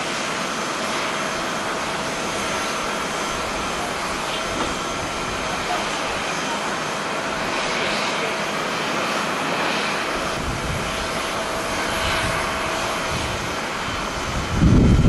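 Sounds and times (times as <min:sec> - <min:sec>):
distant jet engines roaring: 0:00.0 - 0:15.0.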